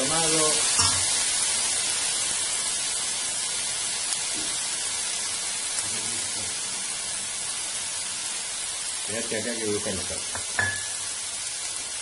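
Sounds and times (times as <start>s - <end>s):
chicken and vegetables sizzling: 0.0s - 12.0s.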